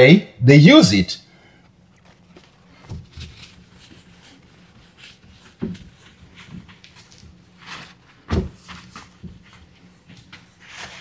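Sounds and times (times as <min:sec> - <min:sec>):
rustles and knocks from handling: 0:02.0 - 0:11.0.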